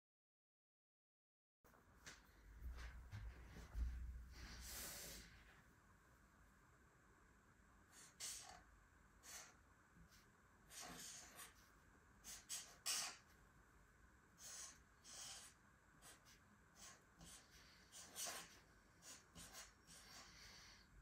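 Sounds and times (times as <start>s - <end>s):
marker pen scratching on paper: 7.9s - 8.6s, 9.2s - 13.4s, 14.4s - 20.8s.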